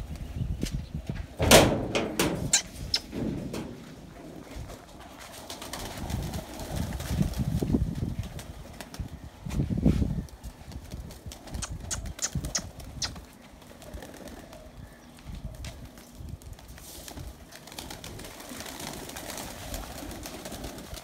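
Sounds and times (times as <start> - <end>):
pigeons cooing: 11.4 - 15.7.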